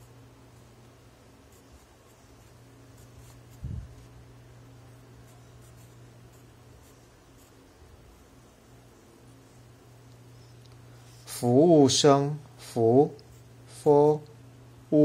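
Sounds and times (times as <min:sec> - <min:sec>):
steady low hum: 0:00.0 - 0:15.0
pencil scratching on paper: 0:01.4 - 0:04.2, 0:05.2 - 0:07.8.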